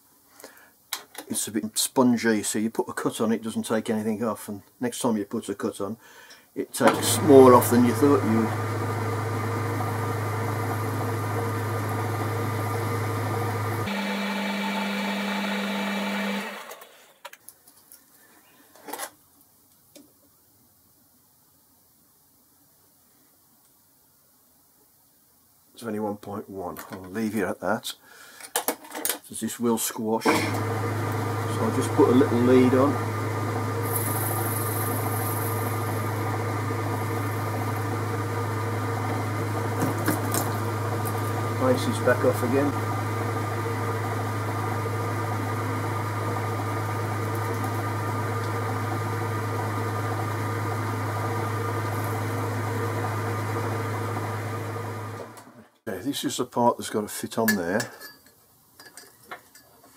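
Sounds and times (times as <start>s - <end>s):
lathe motor humming: 6.9s - 17.1s, 30.3s - 55.4s.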